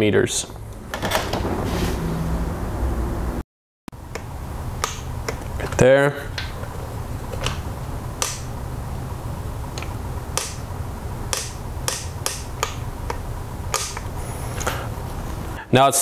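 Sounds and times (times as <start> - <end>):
steady low hum: 4.0 - 16.0.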